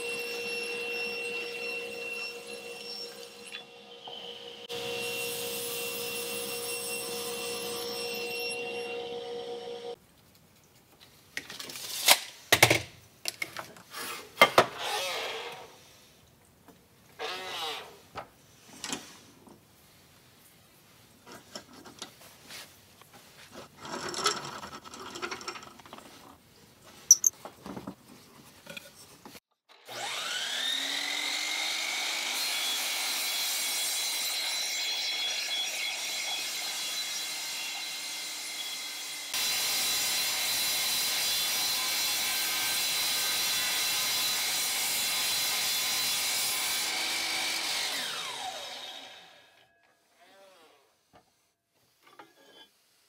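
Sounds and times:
miter saw whining: 0.0s - 10.0s, 29.9s - 32.6s.

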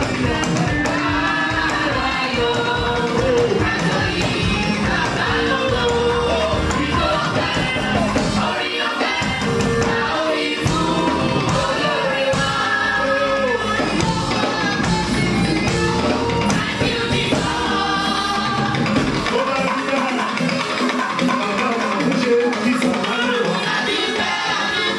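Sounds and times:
women's choir singing gospel: 0.0s - 19.4s, 23.1s - 24.9s
instrumental accompaniment beat: 0.0s - 24.9s.

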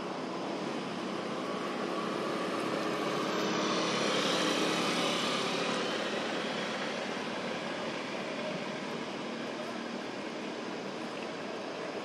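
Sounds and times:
engine-like rushing drone: 0.0s - 12.0s.

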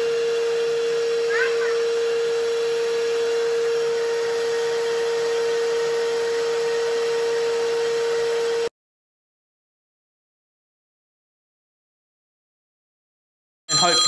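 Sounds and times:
vacuum cleaner running: 0.0s - 8.7s.

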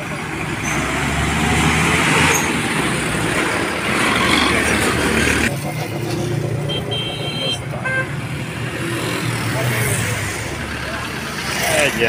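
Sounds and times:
truck engine driving past: 0.0s - 6.6s
motorcycle traffic noise: 0.0s - 12.0s.

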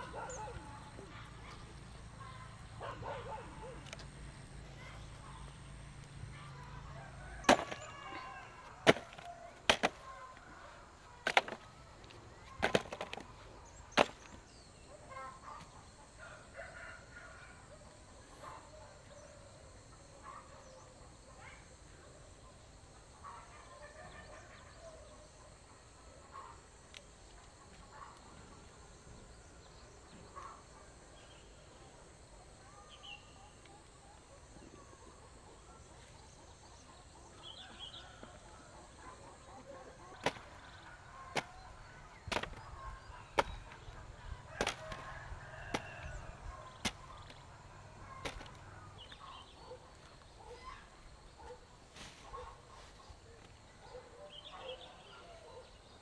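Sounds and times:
blade chopping wood: 7.4s - 8.0s, 8.8s - 10.0s, 11.2s - 11.6s, 12.6s - 13.3s, 13.9s - 14.4s, 40.2s - 40.5s, 42.2s - 42.6s, 43.3s - 43.8s, 44.6s - 45.1s, 46.8s - 47.4s, 48.2s - 48.6s.

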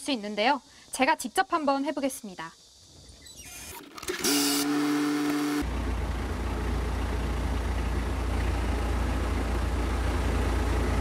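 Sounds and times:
starter motor whine: 3.5s - 6.3s
diesel engine idling: 5.6s - 11.0s.

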